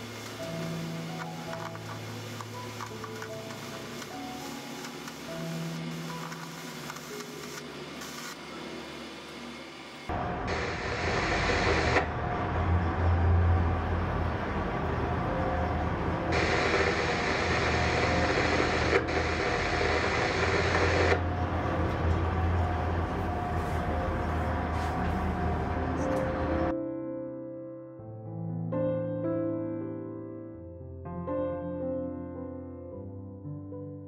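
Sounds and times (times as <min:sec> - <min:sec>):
diesel engines droning: 0:09.4 - 0:26.7
high hiss: 0:16.3 - 0:21.2.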